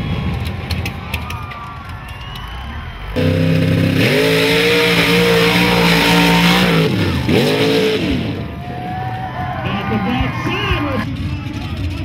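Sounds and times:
buggy engine revving: 2.6 - 12.0.

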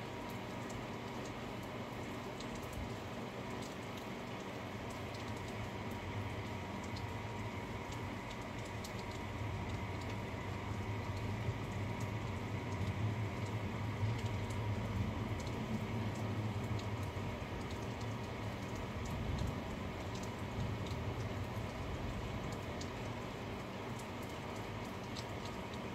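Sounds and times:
raindrops tapping close by: 0.0 - 25.9
steady rain: 0.0 - 25.9.

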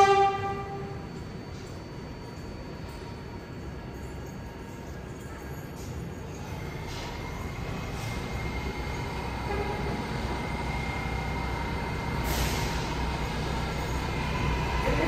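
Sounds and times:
subway train rumble and whine: 0.0 - 15.0
brief air hiss: 12.2 - 13.0.

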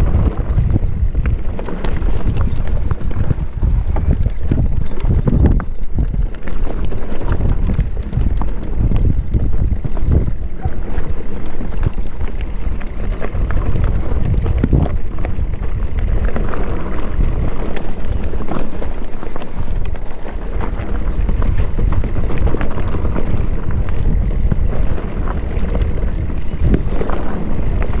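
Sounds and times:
bike knocks and rattles: 0.0 - 28.0
wind buffeting microphone: 0.0 - 28.0.

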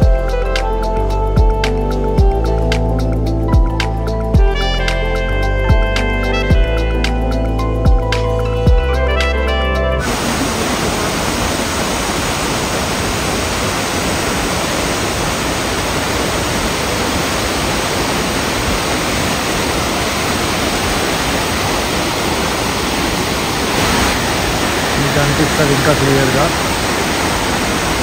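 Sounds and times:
waterfall rushing: 9.4 - 28.0.

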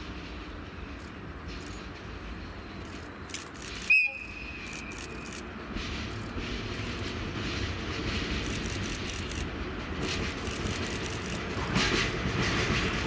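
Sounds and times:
passing train rumble: 0.0 - 13.0
locomotive whistle blast: 3.9 - 4.6.

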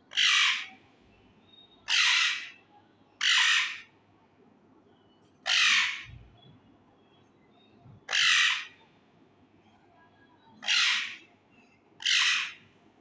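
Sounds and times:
parakeet squawking: 1.9 - 2.5, 8.1 - 8.7, 10.6 - 11.2, 12.0 - 12.6.

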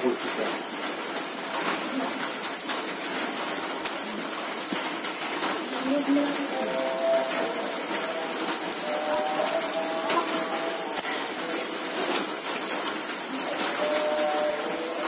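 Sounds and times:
fire crackling: 0.0 - 15.0
fish sizzling on a grill: 0.0 - 15.0.

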